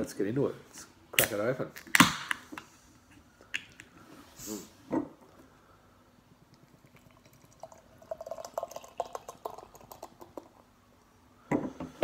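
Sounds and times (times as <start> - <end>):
beer pouring into a glass: 6.4 - 10.7.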